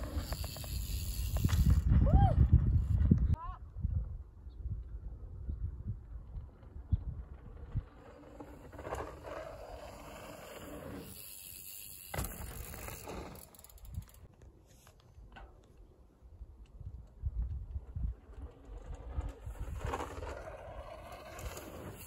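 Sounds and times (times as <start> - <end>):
bike tyres rolling on dirt: 0.0 - 3.3, 5.9 - 22.0
wind rumble on microphone: 0.9 - 8.4, 16.4 - 20.4.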